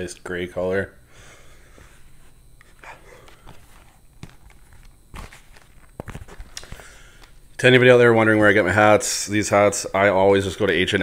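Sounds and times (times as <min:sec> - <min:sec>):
cloth caps rustling: 0:01.8 - 0:07.6.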